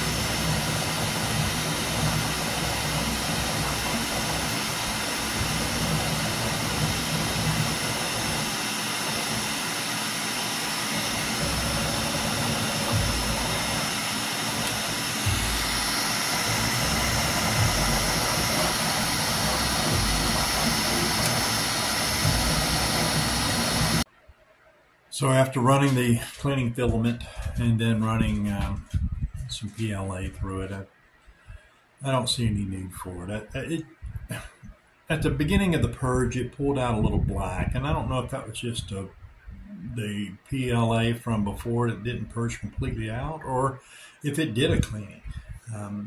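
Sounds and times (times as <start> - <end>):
printer motors whining: 0.0 - 24.0
printer cooling fans whirring: 0.0 - 24.1.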